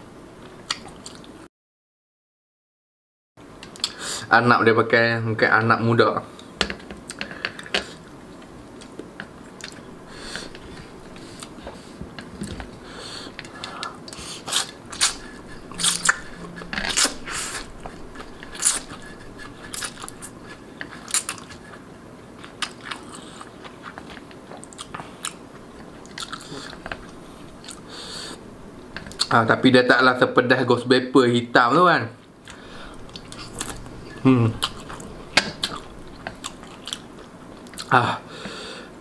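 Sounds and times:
chewing: 16.9s - 21.8s, 22.4s - 27.8s, 32.4s - 37.9s.

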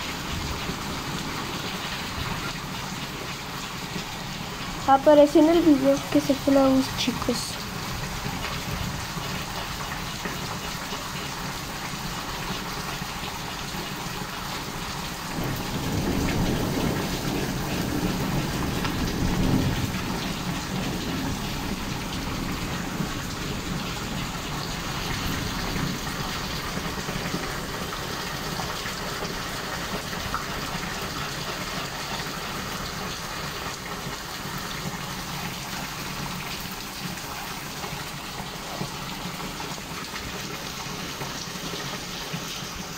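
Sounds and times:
steady rain: 0.0s - 42.9s
thunder rumble: 15.3s - 28.4s.

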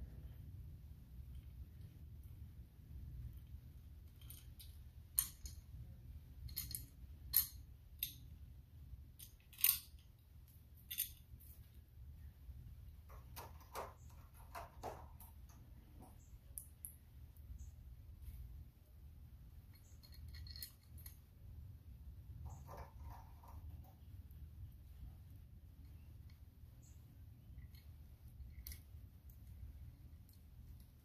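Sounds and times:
low steady hum: 0.0s - 31.0s
metallic clicks and clinks: 4.0s - 5.8s, 6.4s - 8.3s, 9.2s - 11.4s, 19.6s - 21.3s.

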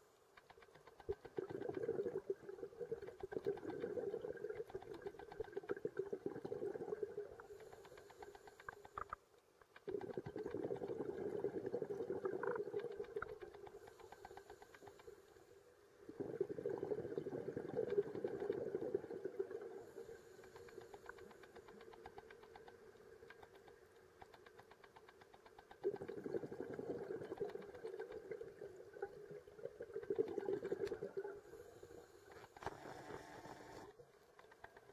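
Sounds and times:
crackle of fine clicks underwater: 0.0s - 34.9s
scuba exhalation bubbling: 1.2s - 7.5s, 9.9s - 13.3s, 16.0s - 19.9s, 25.8s - 31.4s.

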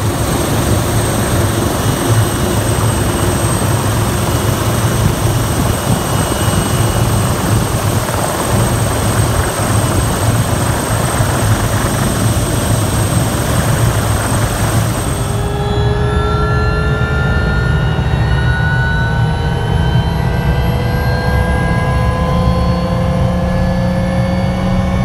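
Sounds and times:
helicopter rotor beat: 0.0s - 18.5s
turbine whine: 0.0s - 25.0s.

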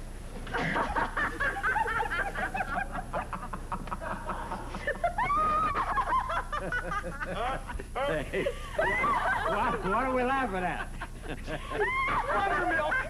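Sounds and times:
woman laughing hard: 0.6s - 7.7s, 11.2s - 13.0s.

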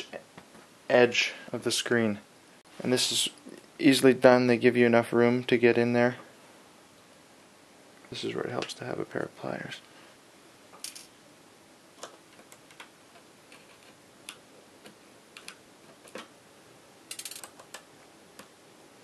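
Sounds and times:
small metallic clicks of tools: 17.1s - 17.8s.

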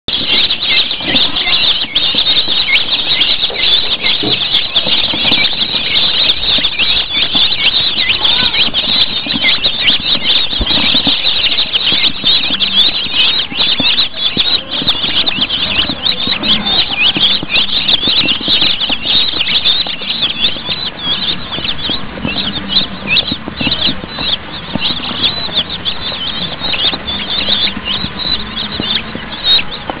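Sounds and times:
chicks peeping: 0.0s - 30.0s.

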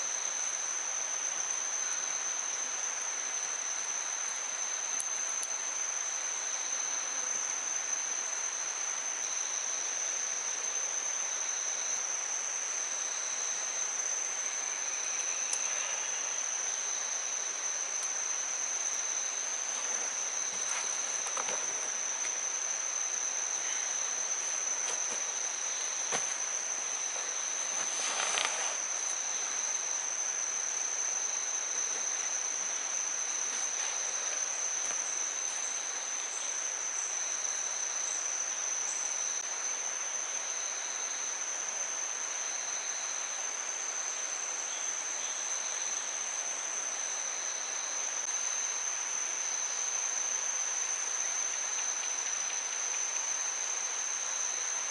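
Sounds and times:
high-pitched insect chorus: 0.0s - 54.9s
low pulsing insect call: 0.0s - 54.9s
brief rustle: 27.2s - 28.8s.

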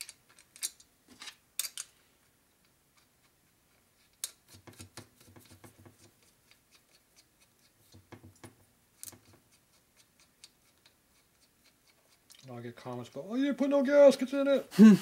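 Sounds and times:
metal nuts clicking and clinking: 0.0s - 1.9s.

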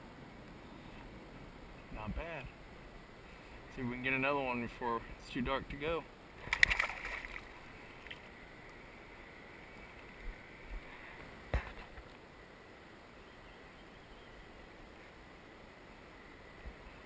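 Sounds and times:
water splashing: 6.4s - 8.3s.

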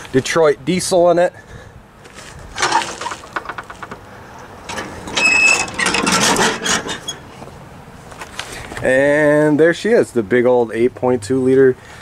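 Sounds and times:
metal hood clunking: 2.5s - 7.5s
short squeak: 4.7s - 7.4s.

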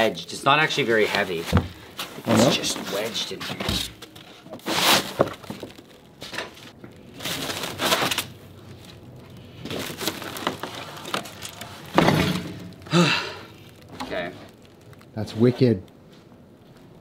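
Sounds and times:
foam scraping against plywood: 4.3s - 5.3s.

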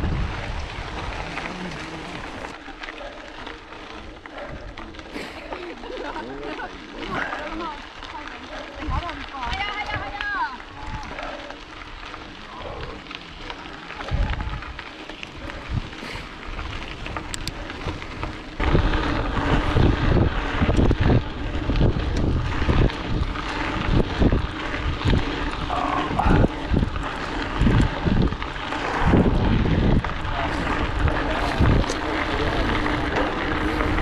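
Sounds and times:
bike tyres on gravel: 0.0s - 34.0s
wind buffeting microphone: 0.0s - 34.0s.

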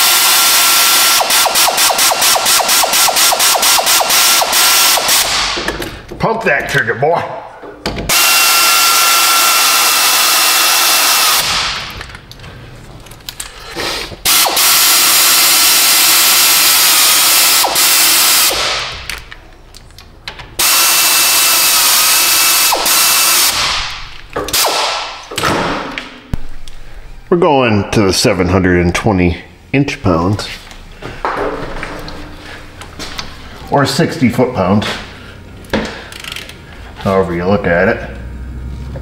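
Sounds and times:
power ratchet whining: 0.0s - 5.7s, 8.1s - 11.9s, 14.2s - 18.7s, 20.6s - 23.7s, 36.0s - 36.6s.

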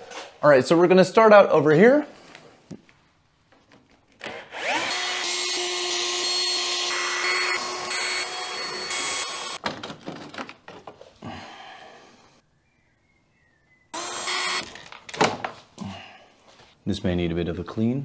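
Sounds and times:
cordless drill whine: 4.3s - 9.6s, 14.0s - 14.8s
plastic parts clicking and rattling: 9.6s - 11.0s, 14.6s - 15.5s.

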